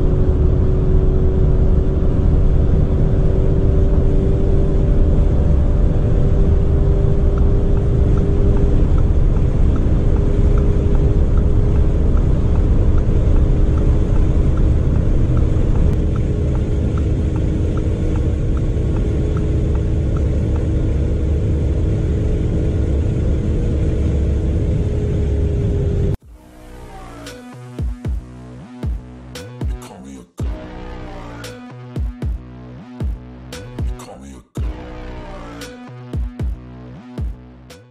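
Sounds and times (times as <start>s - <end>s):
car engine drone from cabin: 0.0s - 29.5s, 30.4s - 37.7s
wind and road roar: 0.0s - 29.6s
second car engine: 0.0s - 29.7s.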